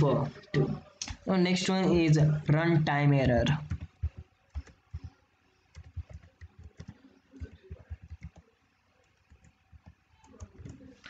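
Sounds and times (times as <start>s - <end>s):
computer keyboard typing: 3.3s - 11.0s.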